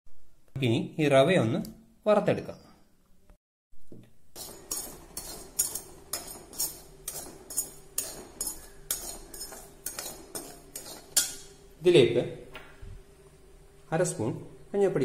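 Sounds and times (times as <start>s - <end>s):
metal ladle scraping pan: 4.4s - 11.6s.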